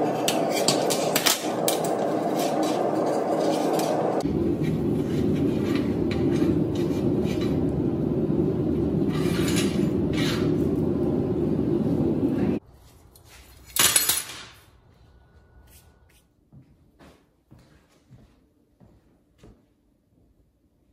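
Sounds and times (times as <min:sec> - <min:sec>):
gloved hands scraping metal: 0:00.0 - 0:08.0, 0:09.0 - 0:10.6
loud shop roar: 0:00.0 - 0:12.6.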